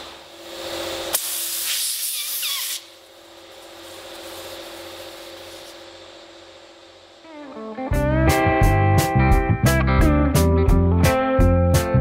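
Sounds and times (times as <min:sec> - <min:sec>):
compressed air hissing: 0:01.1 - 0:06.0.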